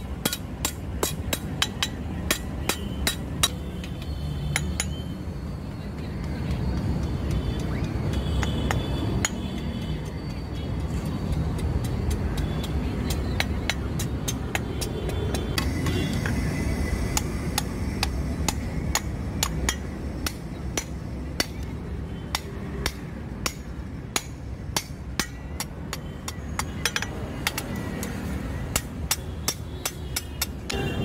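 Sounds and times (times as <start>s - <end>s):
hammer striking steel anvil: 0.0s - 3.6s, 22.3s - 25.8s, 26.6s - 30.8s.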